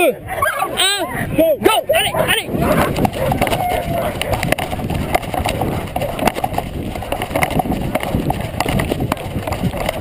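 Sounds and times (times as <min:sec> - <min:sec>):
running footfalls on grass and dirt: 0:02.4 - 0:10.0.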